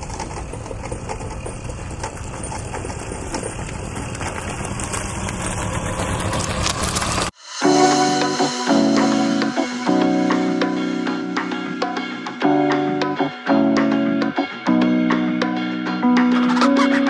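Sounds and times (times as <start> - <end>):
small motorcycle engine idling: 0.0 - 7.3
music: 7.4 - 17.0.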